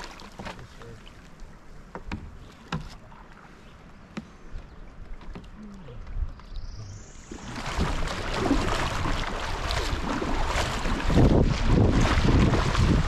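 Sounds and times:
moving water: 0.0 - 13.0
paddle strokes: 0.0 - 13.0.

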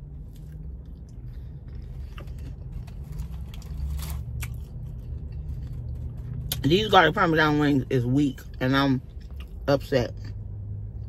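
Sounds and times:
low steady hum: 0.0 - 11.0
chewing and biting: 0.1 - 6.7, 9.1 - 9.6.

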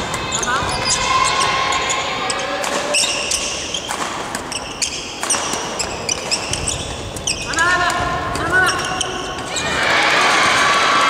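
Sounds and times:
sneakers squeaking on gym floor: 0.0 - 9.7
racket hitting shuttlecock: 2.6 - 8.5.

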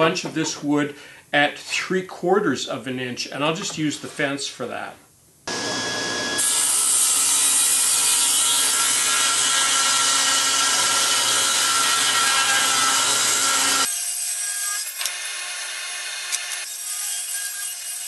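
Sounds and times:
table saw ripping wood: 5.5 - 18.0.

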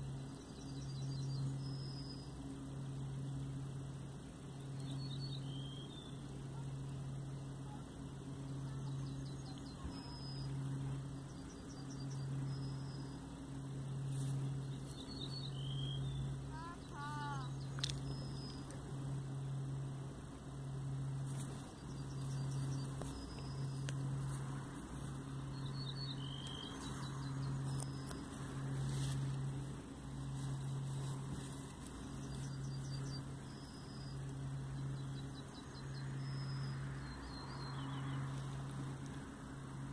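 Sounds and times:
low pulsing hum: 0.0 - 39.9
faint high bird chirps: 4.7 - 18.8, 25.4 - 28.3, 32.0 - 38.6.

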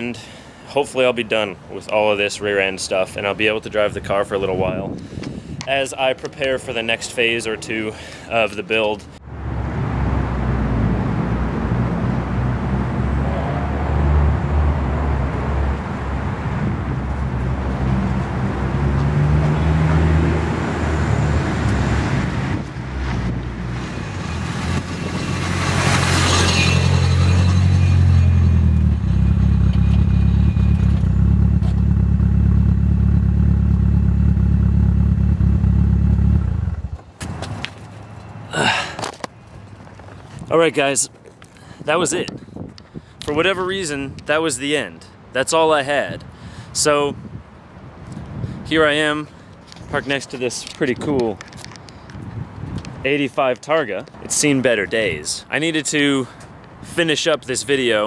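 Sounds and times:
rush of passing car: 9.3 - 31.9
car engine driving by: 9.4 - 39.0.

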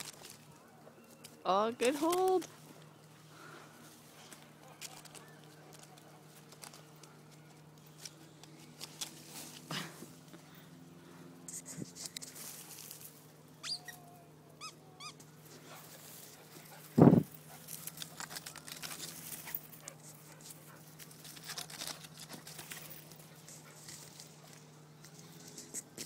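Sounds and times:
scratching and rustling: 11.5 - 13.2, 15.5 - 26.0
puppy whimpering: 13.6 - 15.2.

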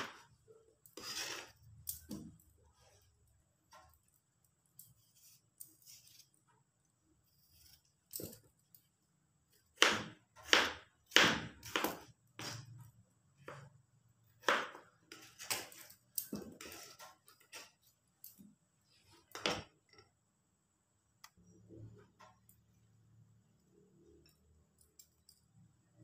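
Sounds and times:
knife chopping on plastic board: 9.8 - 12.6, 14.4 - 15.6.

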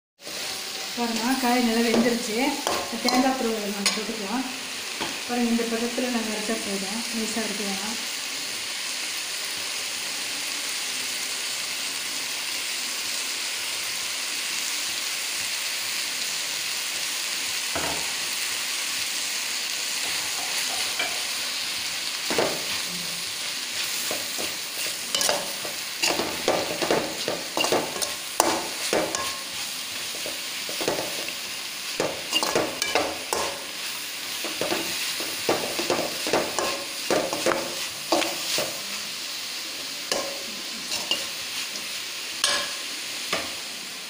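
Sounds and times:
metal spoon scraping a pan: 0.2 - 4.2, 20.0 - 21.6, 22.3 - 39.0, 40.1 - 43.6
food sizzling in a pan: 0.2 - 44.0.

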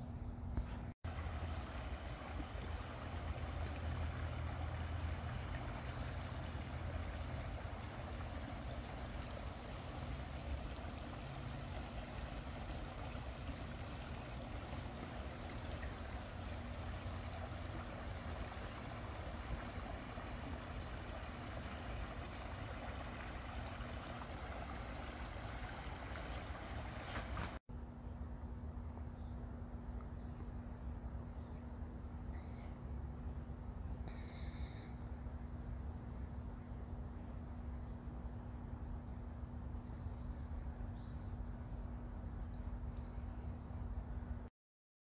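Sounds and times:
creek water rushing over rocks: 1.1 - 27.6.

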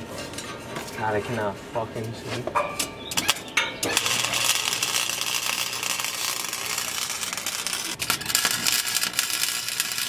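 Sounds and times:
welder arc sputtering crackle: 3.2 - 10.0.

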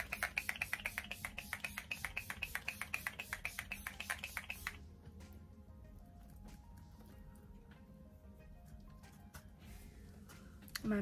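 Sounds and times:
spray bottle hissing rapidly: 0.0 - 4.8.

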